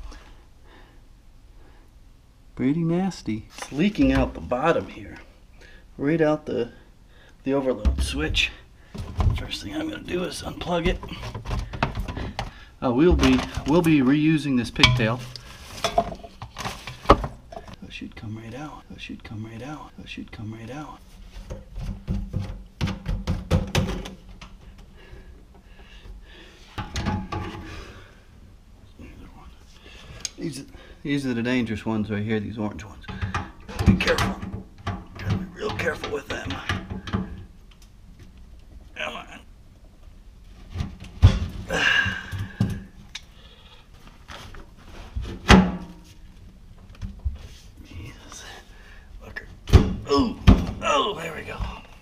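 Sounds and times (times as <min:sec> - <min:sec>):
metal tools knocking on metal: 0:14.8 - 0:16.3
plastic drain pipe knocking: 0:21.8 - 0:24.1.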